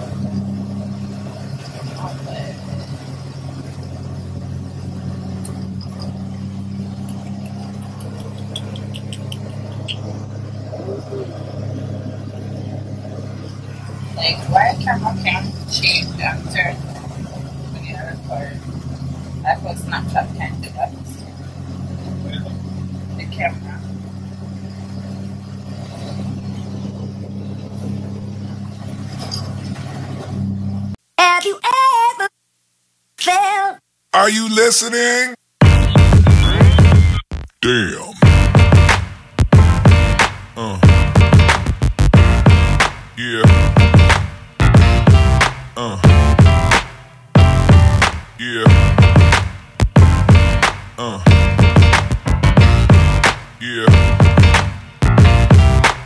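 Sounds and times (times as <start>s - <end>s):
car driving rumble: 0.0s - 31.0s, 35.6s - 56.0s
light ticks: 7.0s - 10.0s.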